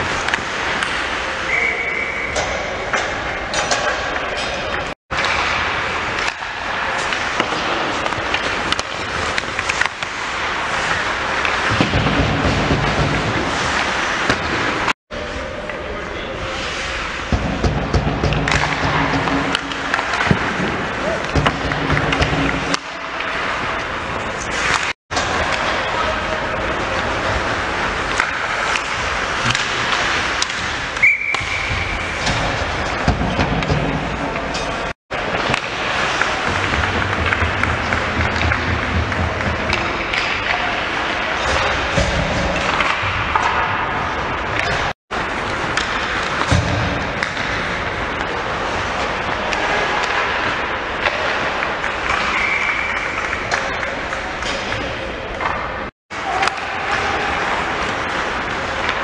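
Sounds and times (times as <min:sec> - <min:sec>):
sticks and puck clacking: 0:00.0 - 0:14.9, 0:16.7 - 0:59.0
arena ambience: 0:00.0 - 0:59.0
referee's whistle: 0:01.5 - 0:02.4, 0:31.0 - 0:31.9
skates scraping on ice: 0:05.2 - 0:14.9, 0:16.4 - 0:54.4.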